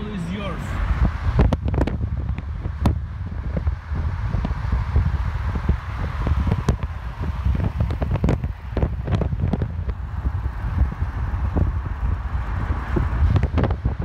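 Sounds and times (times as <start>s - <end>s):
road and traffic rumble: 0.0s - 14.0s
wind buffeting microphone: 0.0s - 14.0s.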